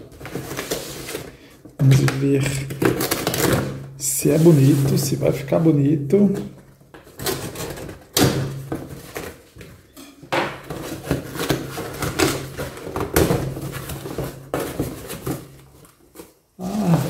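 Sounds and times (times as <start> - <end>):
cardboard flaps scraping and crackling: 0.0 - 1.2, 10.6 - 17.0
packing tape tearing: 0.0 - 3.9, 6.9 - 9.4, 10.7 - 17.0.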